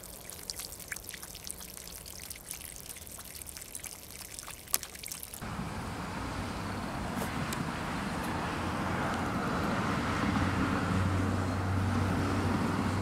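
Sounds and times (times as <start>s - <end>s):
water drips and splashes: 0.0s - 5.4s
water trickling into pond: 0.0s - 7.0s.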